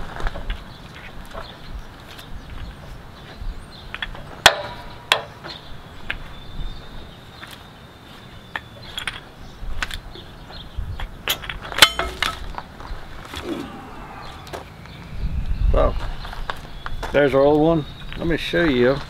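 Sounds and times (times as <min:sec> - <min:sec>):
metallic rattle: 0:11.3 - 0:12.6.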